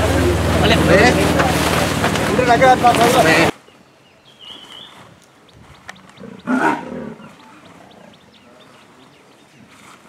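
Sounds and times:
leopard snarling: 6.2s - 8.2s.

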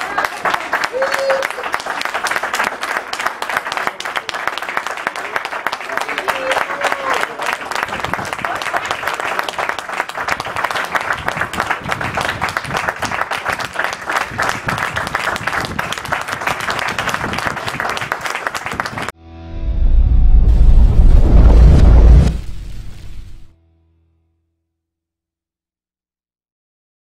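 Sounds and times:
applause: 0.0s - 19.2s
deep rumble: 19.2s - 23.5s.

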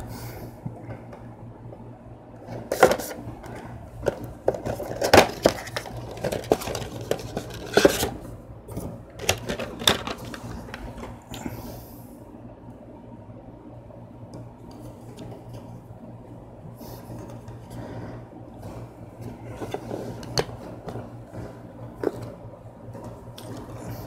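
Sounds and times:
cardboard packaging scraping and rustling: 4.4s - 8.2s.

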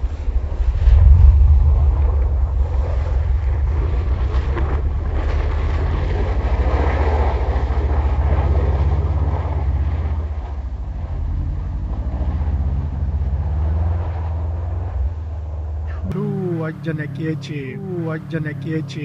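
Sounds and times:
car engine pulsing rumble: 0.0s - 19.0s
tyres spinning in snow: 0.0s - 19.0s.

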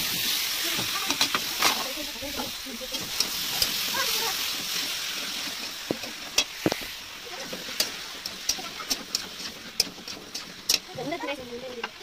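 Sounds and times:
food sizzling in a pan: 0.0s - 12.0s
metal spatula scraping pan: 1.0s - 11.9s.

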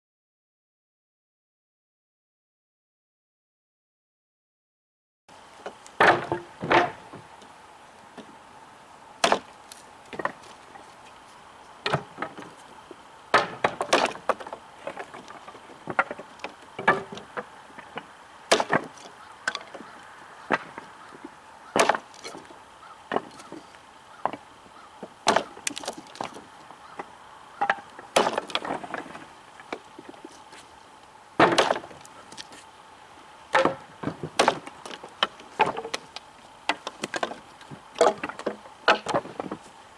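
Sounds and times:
knife chopping into wood: 9.2s - 9.5s, 25.2s - 26.4s, 27.7s - 28.6s.

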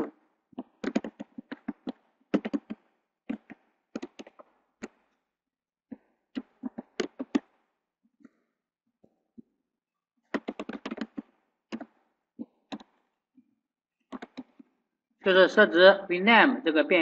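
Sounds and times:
keyboard key clicks: 0.8s - 4.3s, 14.1s - 14.5s.

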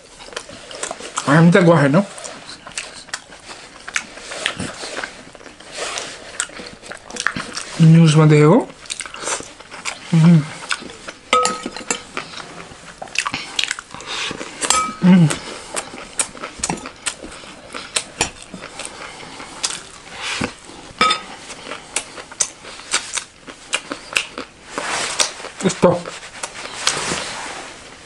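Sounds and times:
spoon scraping glass bowl: 11.3s - 12.4s.

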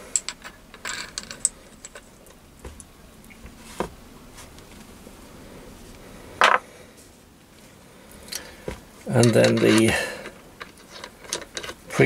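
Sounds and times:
metal parts clattering: 0.0s - 2.1s, 9.1s - 12.0s.

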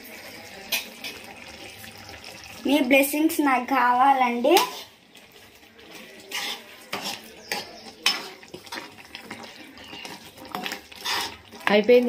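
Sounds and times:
wooden spatula scraping curry: 4.6s - 12.0s.

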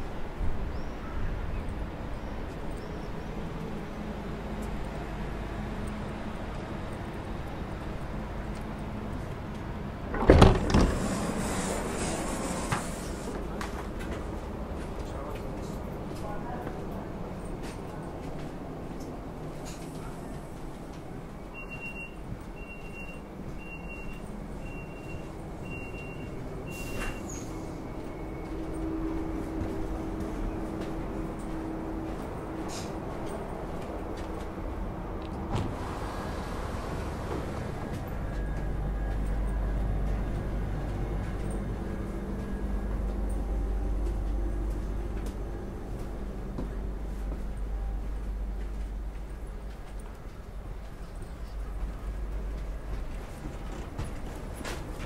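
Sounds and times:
train carriage low rumble: 0.0s - 55.0s
high warning beeps: 21.4s - 28.8s.

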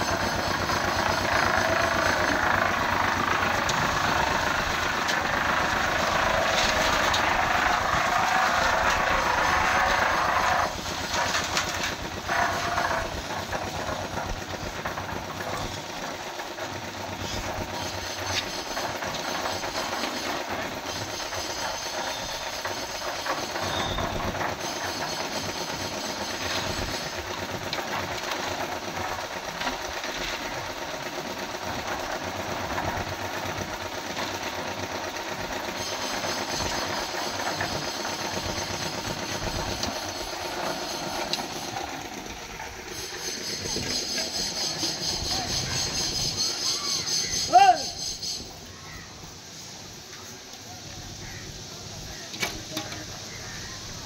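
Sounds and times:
concrete mixer running: 0.0s - 47.9s.

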